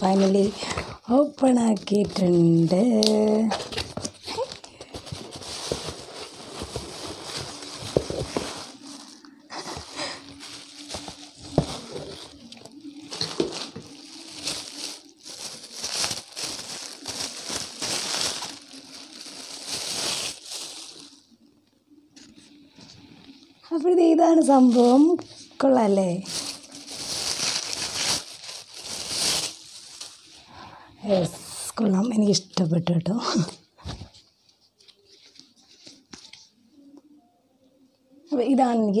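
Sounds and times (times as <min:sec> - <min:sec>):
plastic wrapping crinkling: 0:00.0 - 0:21.5, 0:24.3 - 0:30.6.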